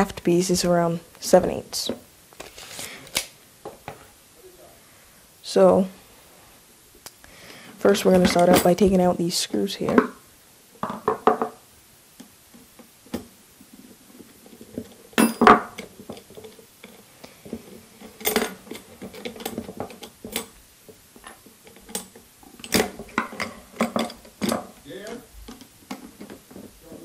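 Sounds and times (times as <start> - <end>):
metal parts knocking on wooden table: 10.8 - 11.6, 15.2 - 16.5.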